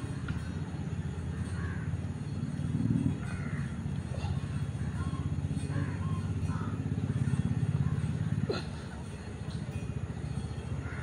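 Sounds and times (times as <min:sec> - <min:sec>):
steady low rumble: 0:00.0 - 0:11.0
crows cawing: 0:01.4 - 0:02.0, 0:03.2 - 0:03.8.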